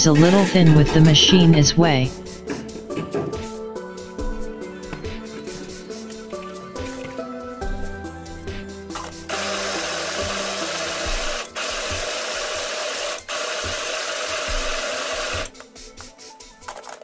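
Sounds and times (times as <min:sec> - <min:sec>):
electric chopper blade whirring: 0:09.1 - 0:15.5.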